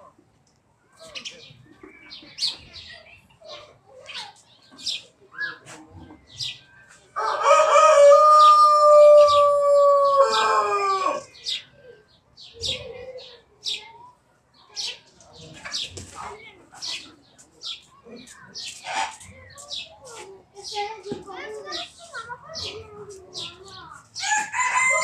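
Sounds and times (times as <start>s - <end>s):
small birds chirping: 0.5s - 7.5s, 11.2s - 25.0s
rooster crowing: 7.2s - 11.3s, 24.2s - 25.0s.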